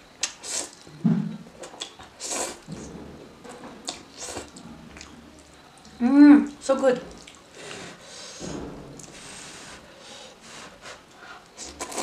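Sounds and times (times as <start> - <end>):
person chewing: 11.6 - 12.0.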